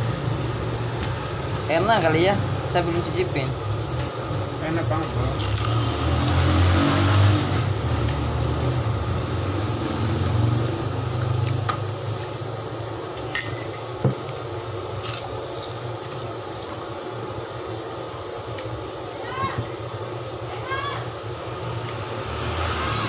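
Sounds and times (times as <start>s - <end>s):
metal spoon clinking on plate: 13.2s - 14.0s.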